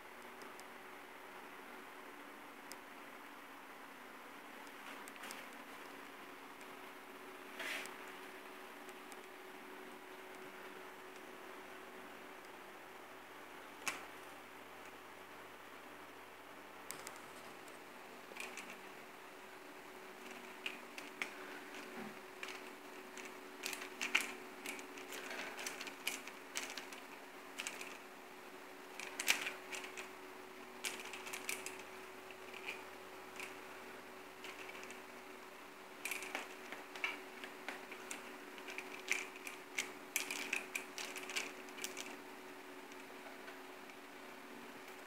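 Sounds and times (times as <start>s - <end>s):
faint steady hum: 0.0s - 45.0s
toy pinwheel clicking and rattling: 20.2s - 28.0s, 28.9s - 30.1s, 30.8s - 32.8s, 37.8s - 42.2s.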